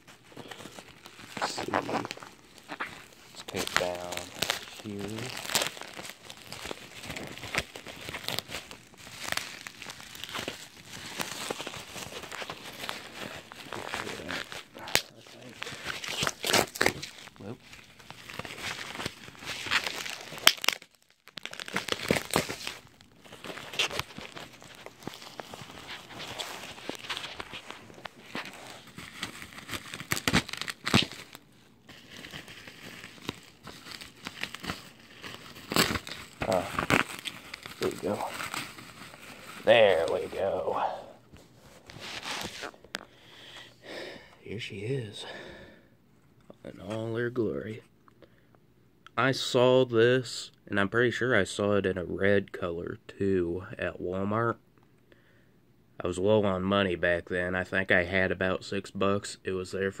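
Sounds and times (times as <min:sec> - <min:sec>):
bubble wrap crinkling: 0:00.0 - 0:45.0.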